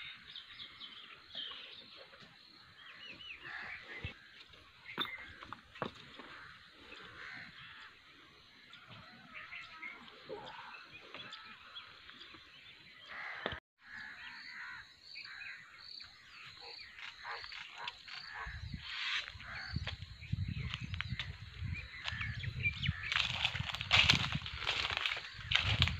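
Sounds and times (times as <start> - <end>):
bird calls and chirps: 0.0 - 25.9.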